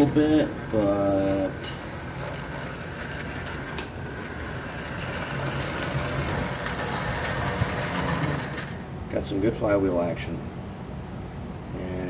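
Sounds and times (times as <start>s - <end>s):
model train motor whirring: 0.0s - 9.0s.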